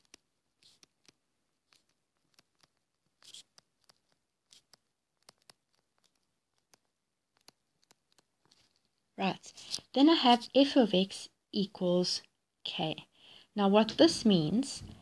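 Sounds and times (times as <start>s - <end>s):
stylus tapping on tablet screen: 0.0s - 8.3s.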